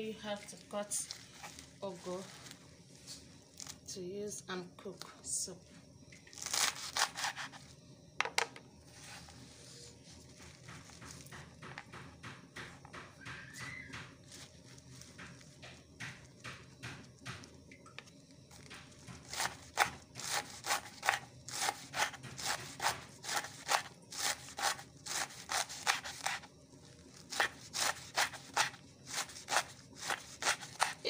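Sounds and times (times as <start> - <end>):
knife knocking on wooden board: 8.2 - 8.6.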